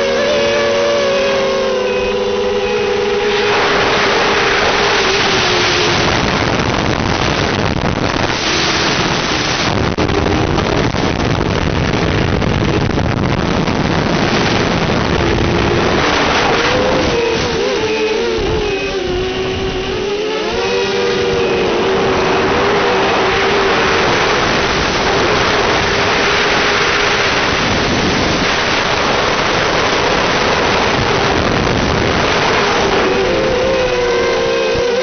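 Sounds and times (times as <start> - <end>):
drone propellers whirring: 0.0 - 35.0.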